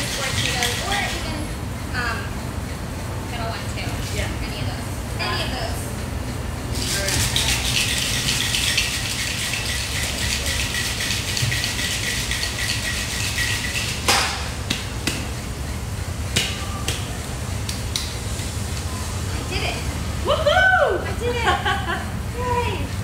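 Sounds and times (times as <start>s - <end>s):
ice rattling in cocktail shakers: 0.0s - 1.3s, 6.8s - 14.1s
sharp knock: 14.1s - 15.2s.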